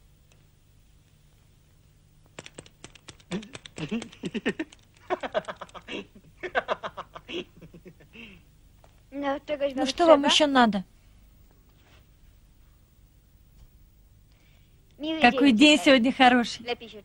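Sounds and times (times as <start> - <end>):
man chuckling softly: 3.3 - 8.4.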